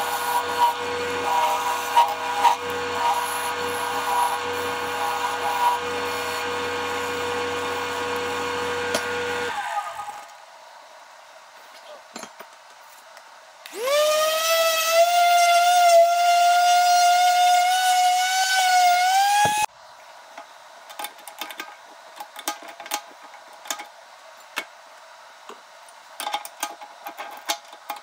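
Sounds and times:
cordless drill motor whining: 0:13.7 - 0:19.7.

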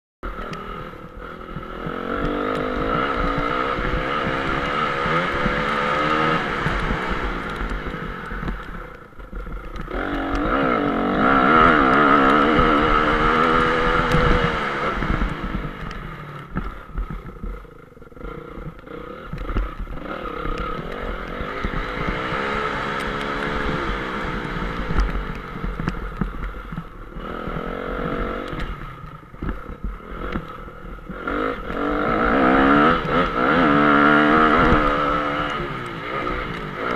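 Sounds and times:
dirt bike engine revving: 0:00.2 - 0:36.9.

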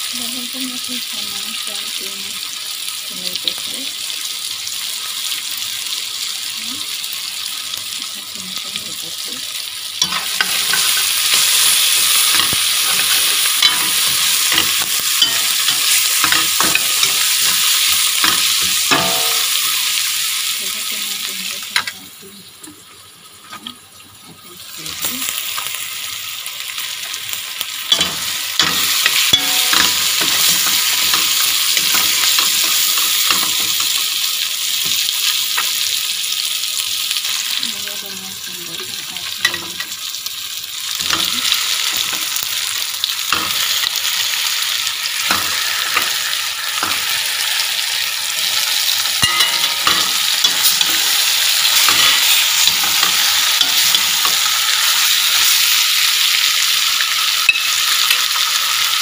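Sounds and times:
vegetables sizzling in hot oil: 0:00.0 - 0:59.0
spoon scraping a metal pot: 0:49.2 - 0:55.0.

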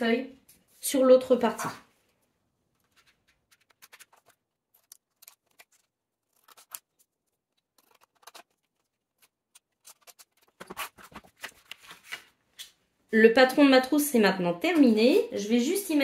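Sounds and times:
scissors snipping paper: 0:02.8 - 0:12.0.

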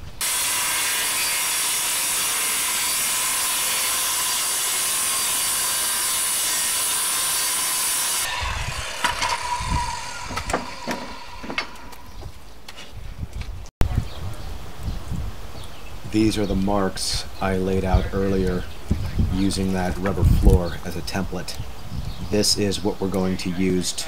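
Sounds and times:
circular saw cutting plywood: 0:00.0 - 0:12.5.

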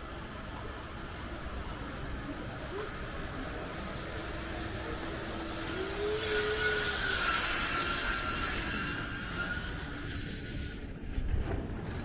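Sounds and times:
high squeal of train: 0:00.0 - 0:11.2
train rumbling past: 0:00.0 - 0:12.0
sharp squeak: 0:06.3 - 0:09.9.

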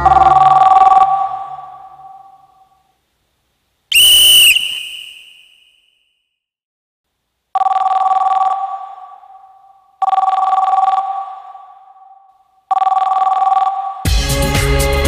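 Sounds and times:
telephone bell ringing: 0:07.6 - 0:11.9, 0:12.7 - 0:14.1.

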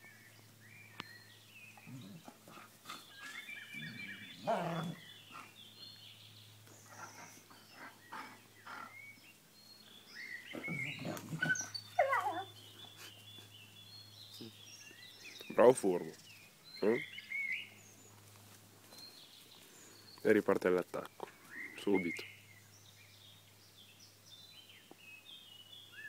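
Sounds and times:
dogs vocalising in play: 0:01.8 - 0:05.6, 0:06.8 - 0:09.1, 0:10.4 - 0:13.2.

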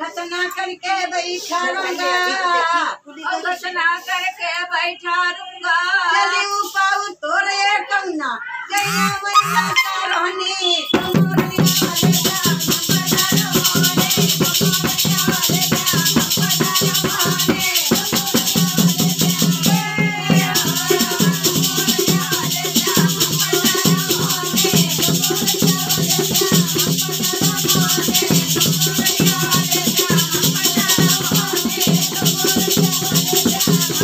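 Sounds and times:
women singing folk song: 0:00.0 - 0:34.0
hand drum beat: 0:11.0 - 0:34.0
rattle: 0:11.2 - 0:19.7, 0:20.5 - 0:34.0.

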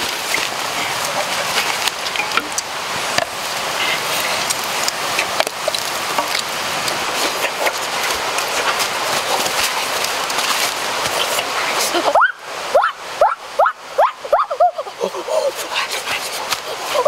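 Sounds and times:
wood fire crackling: 0:00.0 - 0:11.8.

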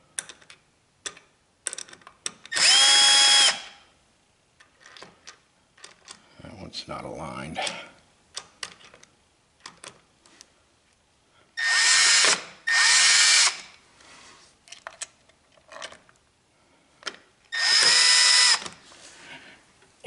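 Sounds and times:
cordless drill whining: 0:02.5 - 0:03.8, 0:11.6 - 0:13.7, 0:17.5 - 0:18.7.

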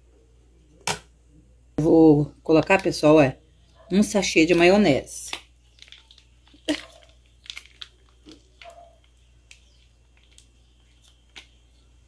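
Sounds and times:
plastic sachet being squeezed: 0:05.3 - 0:11.8.

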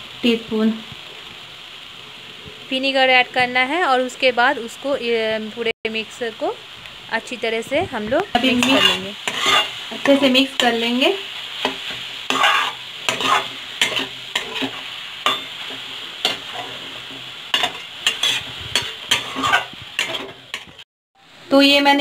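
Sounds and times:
food sizzling: 0:00.0 - 0:22.0
metal spatula scraping a pan: 0:08.3 - 0:11.0, 0:11.6 - 0:20.8.

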